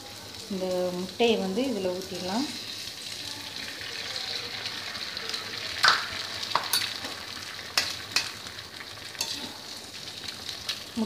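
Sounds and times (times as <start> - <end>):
egg sizzling on hot pan: 0.0 - 11.0.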